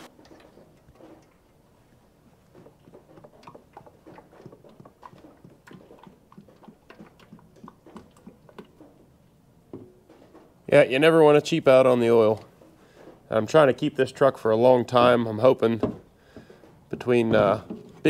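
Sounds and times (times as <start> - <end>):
oil glugging into a metal funnel: 0.0 - 9.9.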